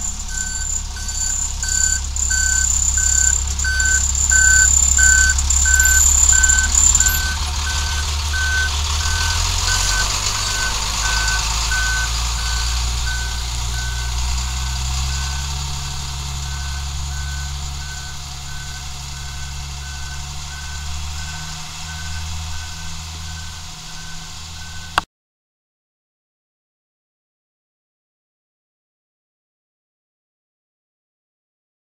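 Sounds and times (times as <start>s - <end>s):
truck backup alarm beeping: 0.0s - 25.0s
truck engine running: 0.0s - 25.0s.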